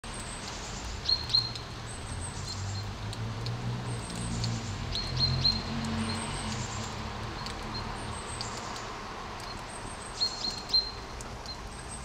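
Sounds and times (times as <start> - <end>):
rain falling through trees: 0.0 - 12.0.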